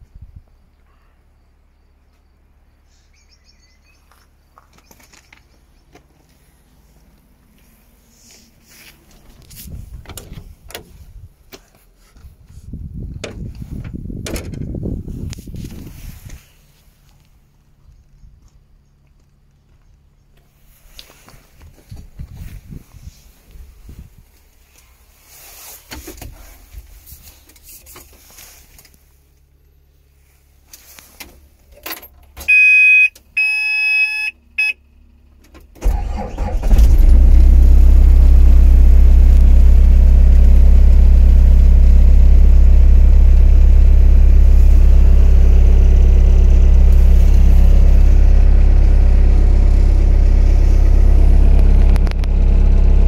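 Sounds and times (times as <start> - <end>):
diesel engine starting and running: 2.4 - 53.0
electronic warning beeps: 32.5 - 34.8.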